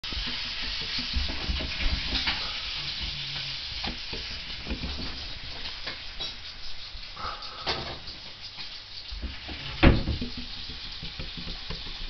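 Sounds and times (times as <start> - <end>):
dull bumps on glass: 9.2 - 12.0.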